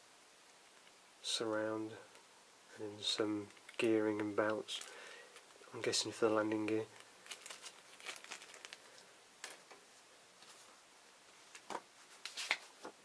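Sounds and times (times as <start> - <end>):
plastic bag crinkling: 3.4 - 9.7.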